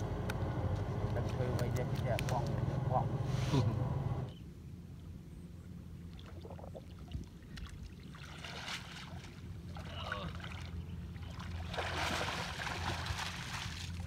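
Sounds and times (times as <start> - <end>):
water splashing and sloshing: 6.0 - 14.0.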